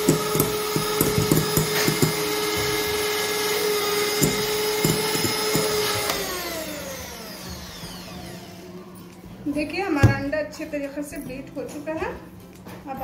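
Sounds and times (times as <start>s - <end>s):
electric hand mixer whisking: 0.0s - 8.9s.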